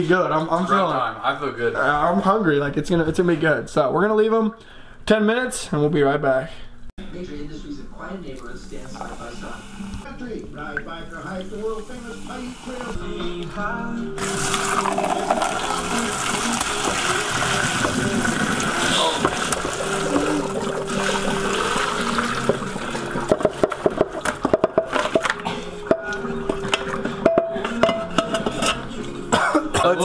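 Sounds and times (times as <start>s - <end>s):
boiling liquid pouring into colander: 14.2s - 25.3s
food clattering into colander: 23.3s - 25.4s.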